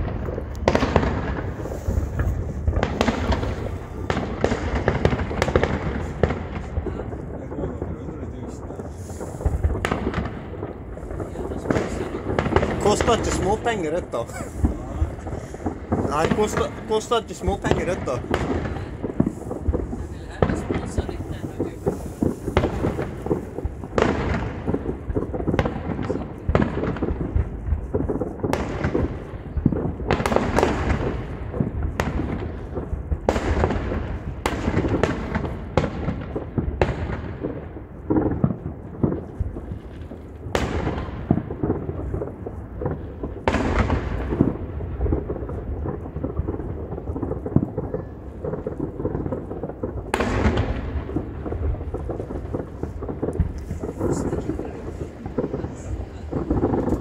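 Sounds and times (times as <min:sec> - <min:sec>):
distant fireworks rumble and crackle: 0:00.0 - 0:57.0
fireworks bangs: 0:00.0 - 0:57.0.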